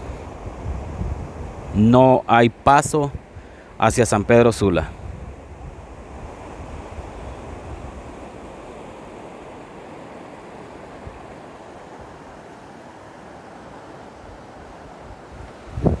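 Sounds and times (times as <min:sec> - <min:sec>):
wind rumble on microphone: 0:00.0 - 0:08.9, 0:14.2 - 0:16.0
river rushing: 0:00.0 - 0:16.0.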